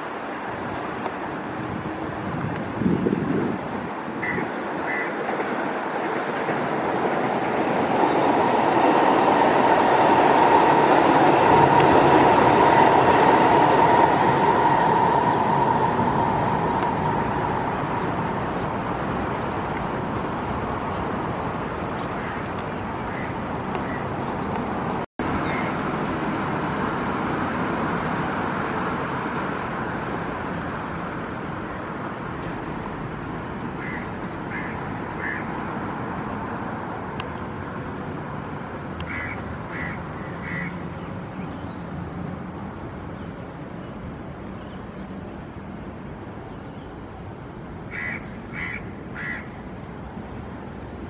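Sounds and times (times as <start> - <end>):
hum of trains: 0.0 - 51.0
road traffic: 0.0 - 51.0
crow cawing: 4.2 - 5.2, 22.2 - 22.5, 23.1 - 24.1, 25.4 - 25.8, 33.8 - 35.5, 39.1 - 40.8, 47.9 - 49.6.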